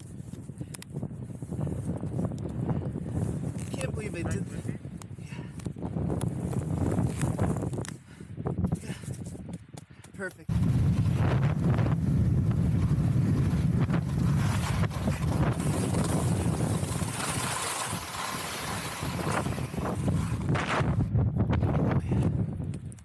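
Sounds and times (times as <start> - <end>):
wind buffeting microphone: 0.0 - 23.0
skis sliding on snow: 10.5 - 21.0.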